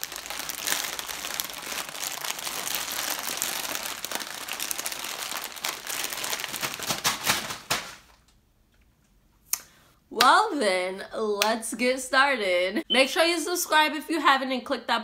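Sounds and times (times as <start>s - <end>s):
plastic bags crinkling: 0.0s - 8.3s.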